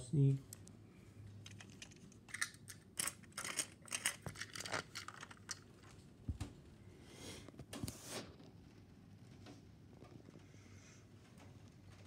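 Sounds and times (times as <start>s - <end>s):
plastic toy train clicks and rustles: 1.4s - 6.0s.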